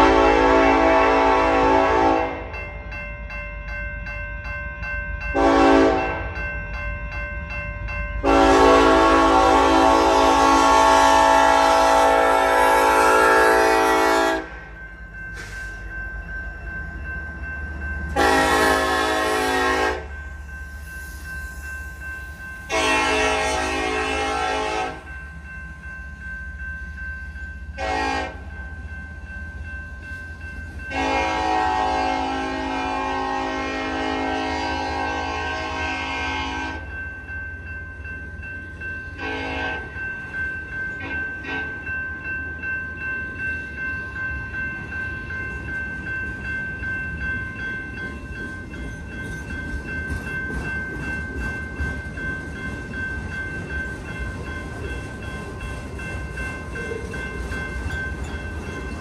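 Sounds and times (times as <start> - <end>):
locomotive air horn: 0.0 - 2.4, 5.4 - 6.2, 8.2 - 14.6, 18.2 - 20.1, 22.7 - 25.0, 27.8 - 28.4, 30.9 - 36.8, 39.2 - 39.9.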